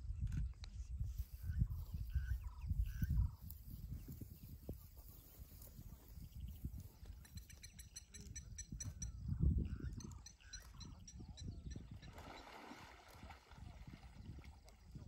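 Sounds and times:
wind noise on microphone: 0.0s - 15.0s
birds giving short calls: 6.1s - 12.6s.

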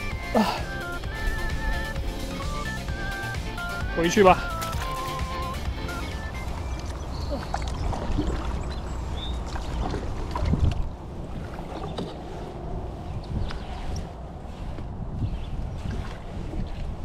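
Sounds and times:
water lapping against kayak: 4.4s - 17.0s
wind rumbling on microphone: 6.4s - 17.0s.

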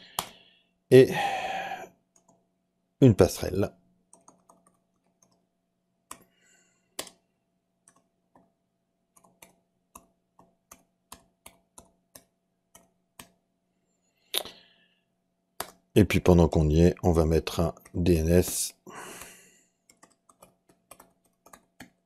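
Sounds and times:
computer keyboard keystrokes: 4.1s - 5.5s, 7.0s - 7.2s, 7.8s - 8.5s, 9.1s - 13.4s, 19.9s - 22.0s.

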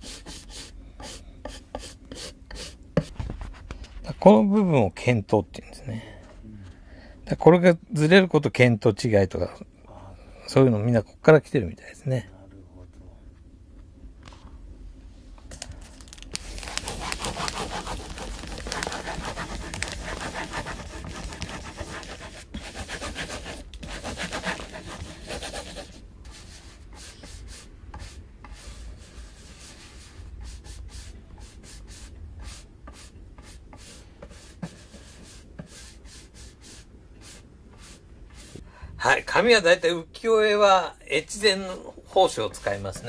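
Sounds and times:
scratchy rubbing on paper: 0.0s - 3.7s, 16.1s - 38.6s, 42.0s - 43.0s.

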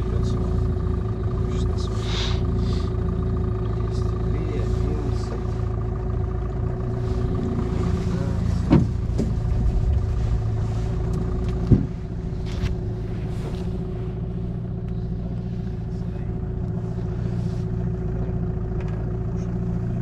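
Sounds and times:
outboard motor running: 0.0s - 20.0s
sharp knocks on boat: 8.6s - 9.5s, 11.4s - 12.6s.

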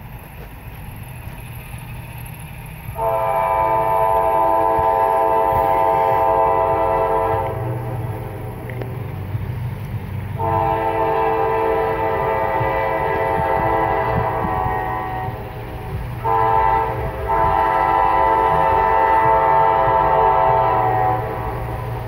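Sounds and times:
low engine rumble: 0.0s - 22.0s
locomotive horn blasts: 2.9s - 8.8s, 10.4s - 22.0s.

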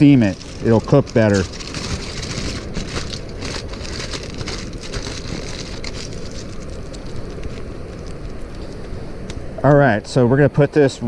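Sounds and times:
aluminium foil crinkling: 0.0s - 8.8s
steady low rush: 0.0s - 11.0s.

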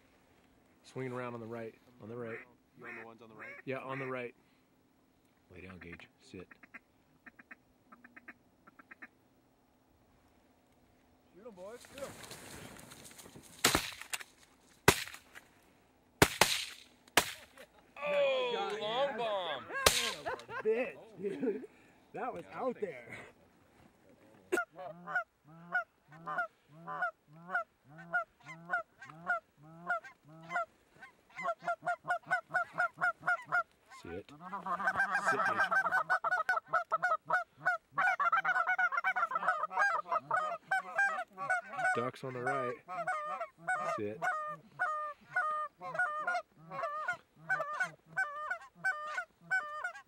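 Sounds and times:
sharp crack: 13.5s - 15.5s, 16.2s - 17.7s, 19.8s - 20.5s
goose honking: 24.5s - 50.0s.

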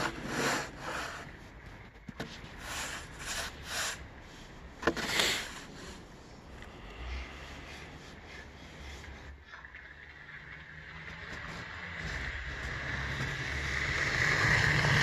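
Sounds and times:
snow shovel scraping pavement: 0.0s - 1.6s, 2.2s - 4.0s, 4.8s - 6.0s.

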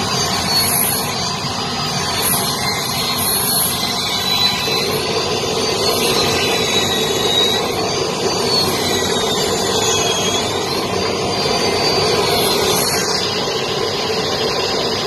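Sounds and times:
table saw cutting wood: 0.0s - 15.0s.

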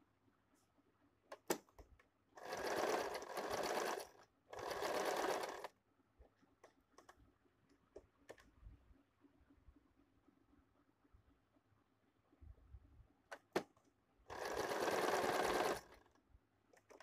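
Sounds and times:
sewing machine stitching: 2.4s - 5.7s, 14.3s - 16.1s.

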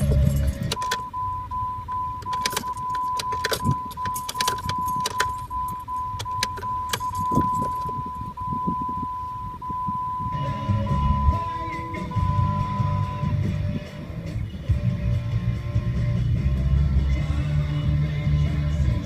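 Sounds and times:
ignition key clicking and jangling: 0.0s - 9.0s
high electronic warning chime: 0.0s - 13.4s.

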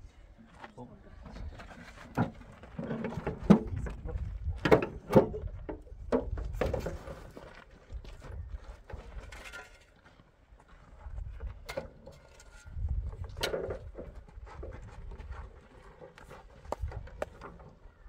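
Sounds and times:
footsteps on stony dirt: 0.4s - 18.0s
metal wheelbarrow rattling over stones: 1.6s - 5.5s, 6.1s - 7.6s, 8.9s - 10.0s, 11.7s - 14.2s
wind on microphone: 3.4s - 4.7s, 12.6s - 15.5s.

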